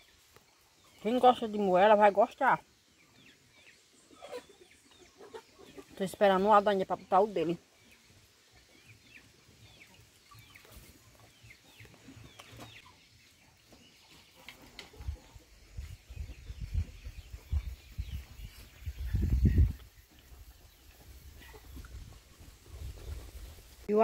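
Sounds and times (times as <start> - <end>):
birds chirping: 0.0 - 24.0.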